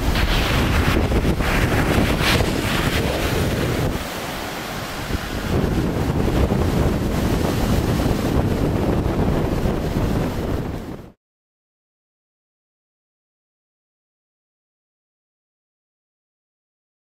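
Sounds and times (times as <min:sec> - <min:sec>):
breaking surf: 0:00.0 - 0:11.2
wind buffeting microphone: 0:00.0 - 0:11.2.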